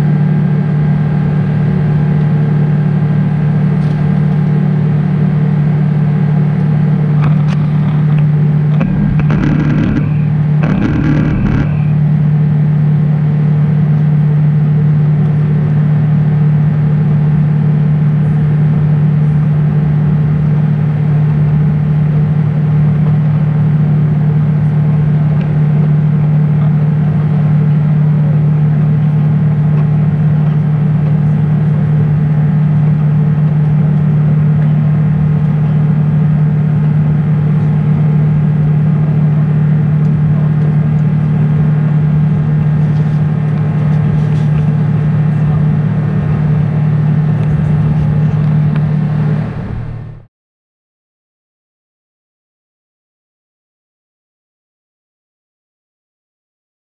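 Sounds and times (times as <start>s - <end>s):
jet engines droning: 7.2s - 12.3s, 42.4s - 50.3s
low hum: 7.2s - 12.6s, 42.3s - 50.3s
air rushing past fuselage: 48.6s - 50.3s.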